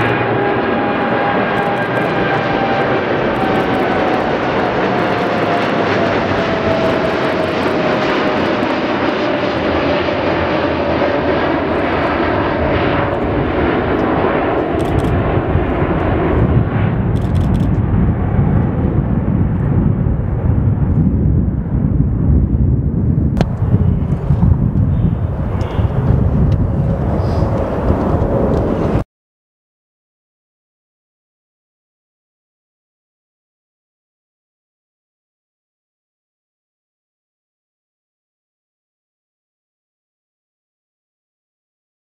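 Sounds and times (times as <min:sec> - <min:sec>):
deep jet rumble: 0:00.0 - 0:29.0
jet roar with whine: 0:00.0 - 0:29.0.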